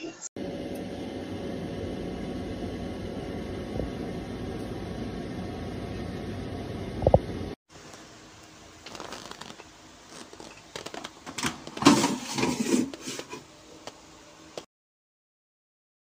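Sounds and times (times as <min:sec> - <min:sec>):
paper rustling: 0:08.8 - 0:11.2.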